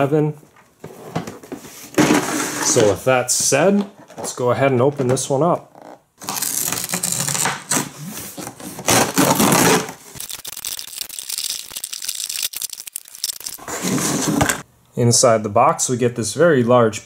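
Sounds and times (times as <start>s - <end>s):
plastic pieces clattering: 10.1s - 14.6s
cardboard box scraping and rustling: 13.6s - 14.6s.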